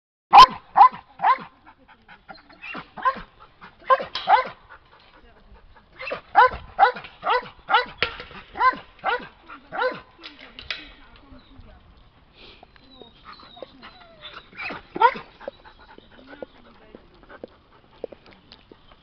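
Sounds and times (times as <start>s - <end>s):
dog barking: 0.3s - 1.5s, 2.7s - 4.6s, 6.0s - 10.1s, 14.6s - 15.2s.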